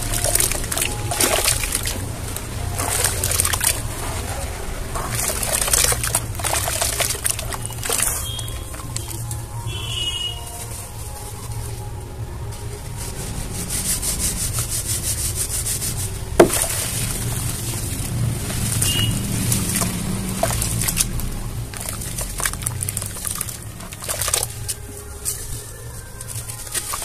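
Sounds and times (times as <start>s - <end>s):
hands going into water: 0.0s - 9.4s, 16.4s - 27.0s.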